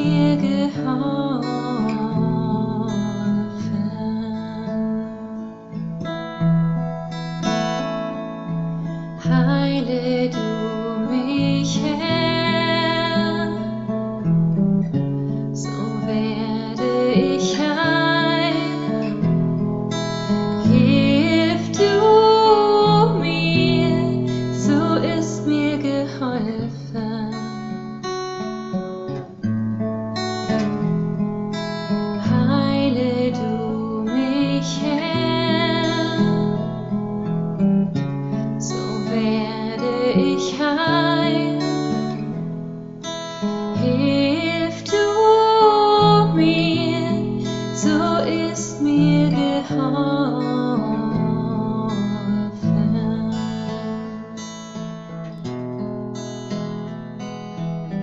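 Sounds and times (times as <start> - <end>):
woman singing: 0.0 - 5.4, 9.2 - 14.3, 15.5 - 19.4, 20.1 - 27.9, 32.0 - 37.0, 38.6 - 42.4, 43.6 - 54.7
acoustic guitar strumming: 0.0 - 58.0.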